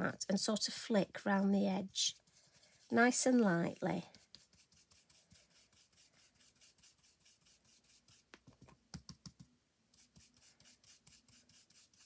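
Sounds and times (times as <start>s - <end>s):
stencil brush brushing on card: 0.9s - 8.4s, 9.9s - 12.0s.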